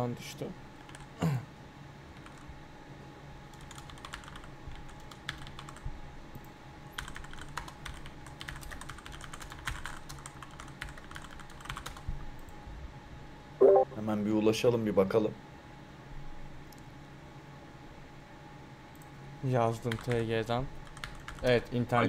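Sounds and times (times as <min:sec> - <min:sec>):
faint steady hum: 0:00.0 - 0:22.0
computer keyboard typing: 0:00.8 - 0:01.1, 0:02.2 - 0:02.4, 0:03.5 - 0:12.5, 0:19.8 - 0:20.2, 0:20.8 - 0:21.5.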